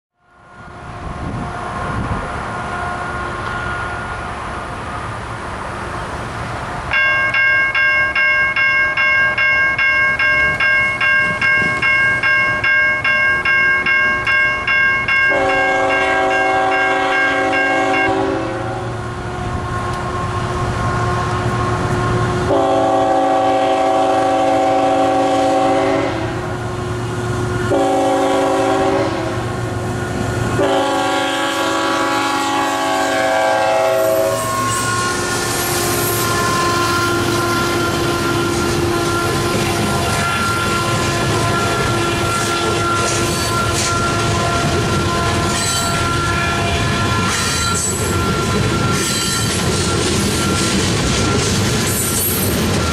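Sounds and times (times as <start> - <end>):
freight train rumbling and clacking: 0.4 - 52.9
crossing bells ringing: 6.9 - 18.6, 33.1 - 52.9
locomotive horn blasts: 15.3 - 26.7, 27.5 - 29.6, 30.5 - 47.9.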